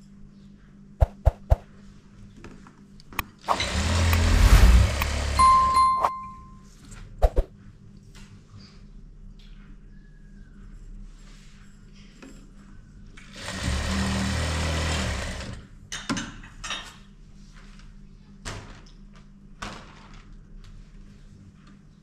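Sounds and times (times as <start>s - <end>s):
sewing machine stitching: 3.4s - 5.4s, 13.3s - 15.6s.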